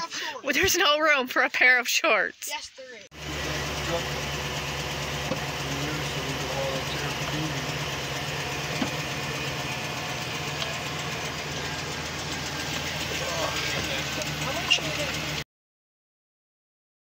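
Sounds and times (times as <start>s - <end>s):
truck engine idling: 3.1s - 15.4s.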